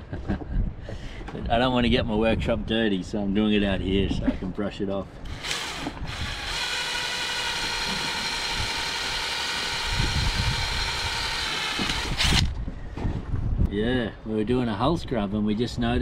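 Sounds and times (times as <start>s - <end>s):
power drill boring through plastic: 5.3s - 12.6s.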